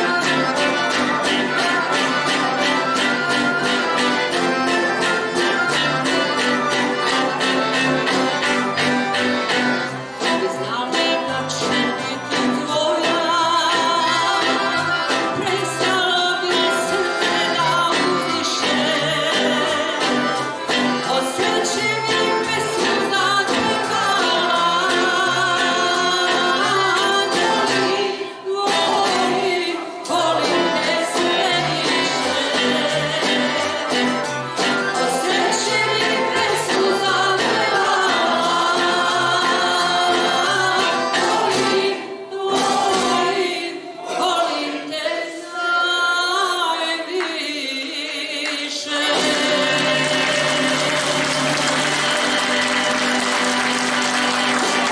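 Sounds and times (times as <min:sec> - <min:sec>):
plucked string instruments: 0:00.0 - 0:45.4, 0:48.7 - 0:54.9
choir singing: 0:00.0 - 0:54.9
woman singing into microphone: 0:10.3 - 0:14.8, 0:15.4 - 0:20.3, 0:21.1 - 0:34.0, 0:35.0 - 0:51.0.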